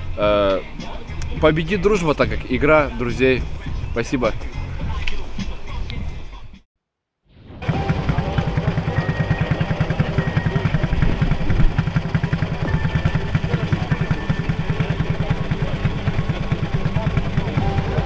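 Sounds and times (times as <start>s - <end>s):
quad bike engine idling: 7.6s - 18.0s.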